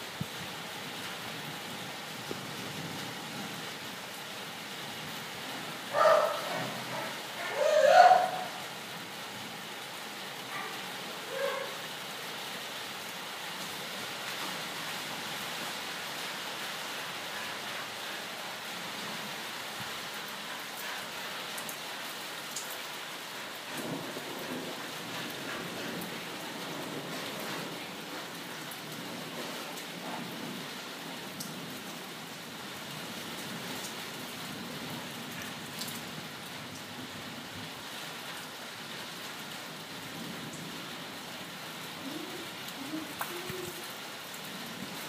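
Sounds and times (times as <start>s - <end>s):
steady rain: 0.0s - 45.0s
low rumbles of thunder: 23.7s - 28.3s
sharp drips on surfaces: 35.2s - 36.9s.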